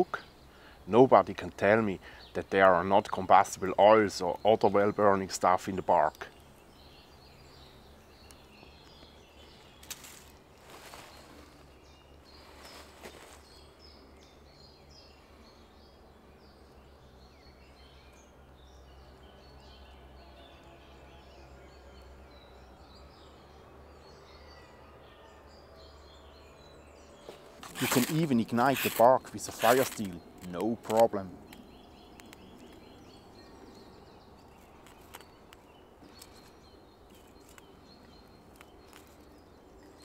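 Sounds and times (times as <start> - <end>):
faint birds chirping: 0.0 - 40.0
soft clicks: 29.8 - 32.8.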